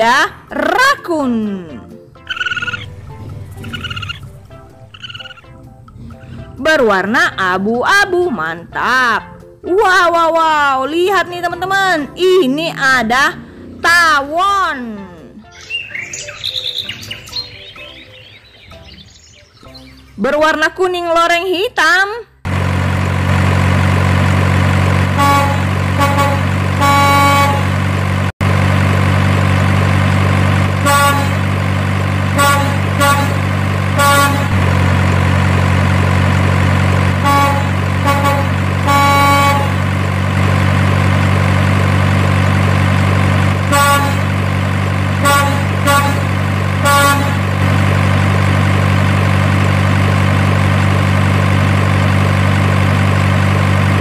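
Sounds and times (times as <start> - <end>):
truck engine droning: 0.0 - 15.3, 22.4 - 54.0
horn toots: 24.9 - 28.0, 30.6 - 31.6, 32.2 - 35.4, 36.9 - 40.0, 43.5 - 44.4, 45.1 - 47.9.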